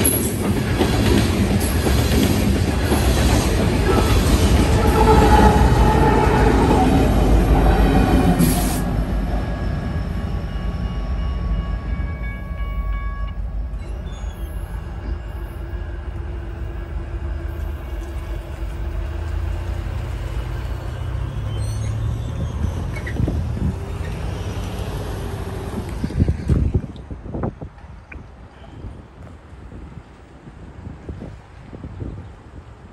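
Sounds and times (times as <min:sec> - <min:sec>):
locomotive rumbling past: 0:00.0 - 0:27.2
crossing warning bell ringing: 0:03.8 - 0:16.1.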